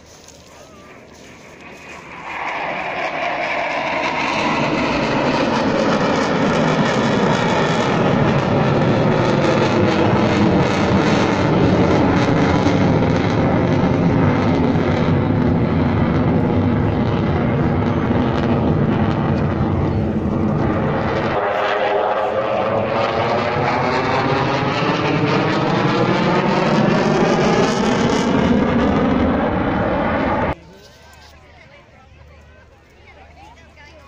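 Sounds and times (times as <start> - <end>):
fighter jet roar: 0.6 - 30.6.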